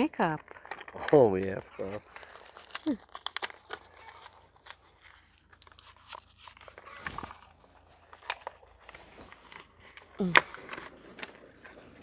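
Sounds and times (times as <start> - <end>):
plastic packaging crinkling: 0.0 - 12.0.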